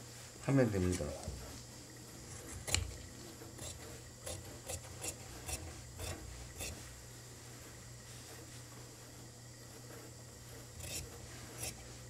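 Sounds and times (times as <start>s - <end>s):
shears snipping cloth: 10.6s - 12.0s.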